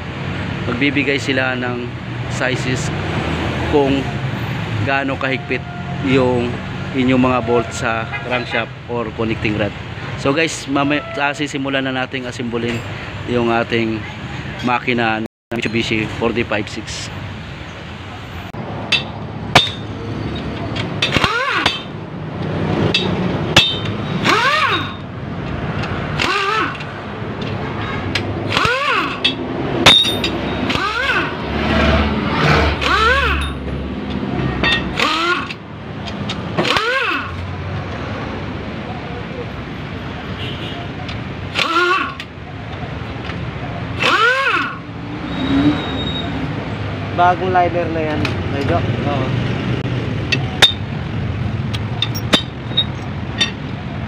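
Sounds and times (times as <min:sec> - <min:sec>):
metal clinks of bolts: 0:18.9 - 0:22.0, 0:22.9 - 0:30.9, 0:32.8 - 0:36.9, 0:51.8 - 0:53.7
pneumatic impact wrench whining: 0:18.9 - 0:22.0, 0:22.9 - 0:25.1, 0:25.8 - 0:31.4, 0:32.4 - 0:33.7, 0:34.6 - 0:37.5, 0:41.4 - 0:42.4, 0:43.9 - 0:45.0.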